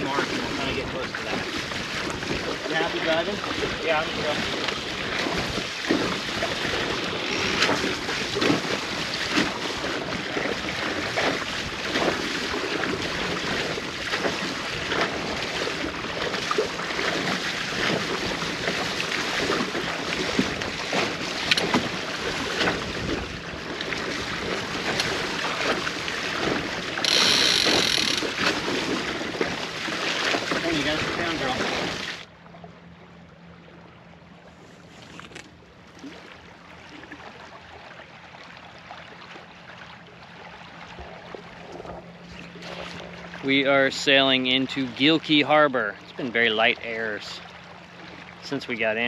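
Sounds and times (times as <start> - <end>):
water splashing along a hull: 0.0 - 49.0
wind buffeting microphone: 19.4 - 27.0.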